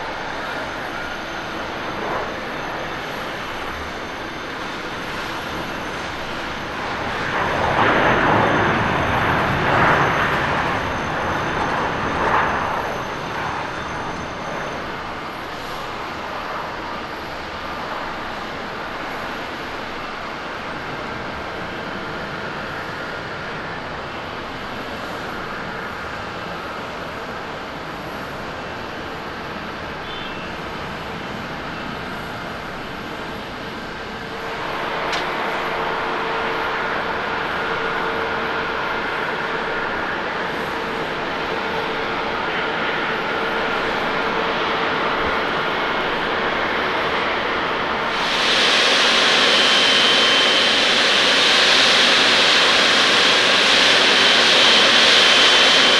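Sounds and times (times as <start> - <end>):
jet engines running: 0.0 - 55.9.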